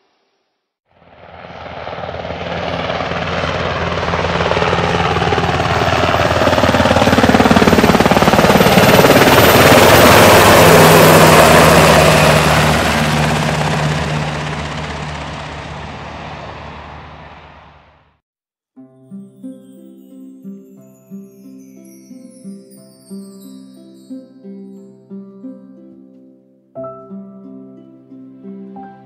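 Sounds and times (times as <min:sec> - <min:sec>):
helicopter flying overhead: 0:00.9 - 0:18.2.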